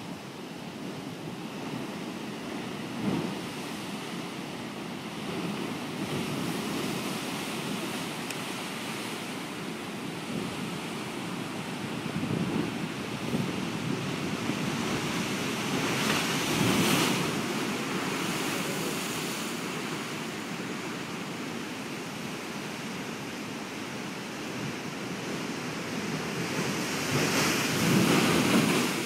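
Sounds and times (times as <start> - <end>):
wind buffeting microphone: 10.0 - 20.1, 24.5 - 29.0
surf breaking on rocks: 26.6 - 29.0.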